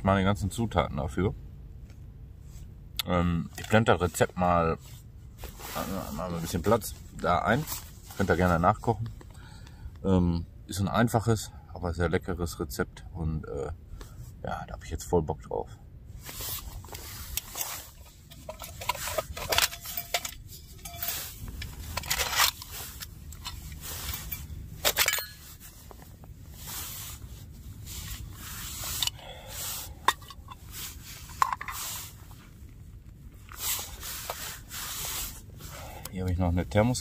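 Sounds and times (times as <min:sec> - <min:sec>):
gear rustling and scraping: 0:03.5 - 0:09.4, 0:16.1 - 0:37.0.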